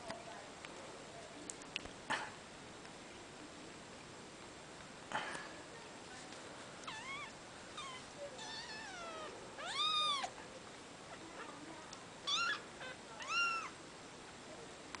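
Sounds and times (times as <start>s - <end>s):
kitten mewing: 6.9s - 10.4s, 12.2s - 13.8s.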